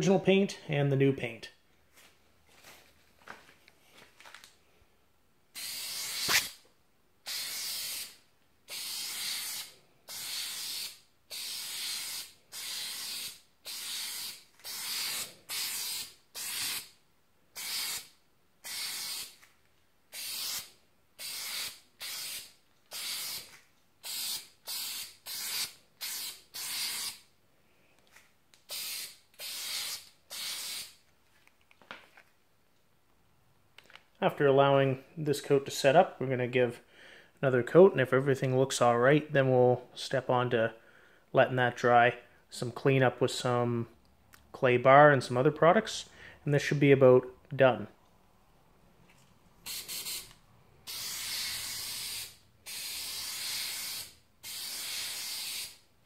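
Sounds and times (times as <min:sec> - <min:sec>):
aerosol can spraying hiss: 0:05.6 - 0:06.6, 0:07.3 - 0:16.9, 0:17.6 - 0:19.4, 0:20.1 - 0:27.2, 0:28.6 - 0:31.0, 0:49.6 - 0:55.8.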